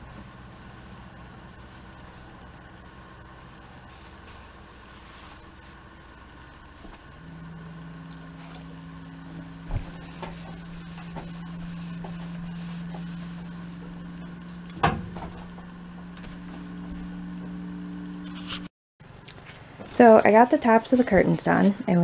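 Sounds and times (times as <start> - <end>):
steady low hum: 0.0 - 22.0
steam iron knocking down: 14.7 - 15.8.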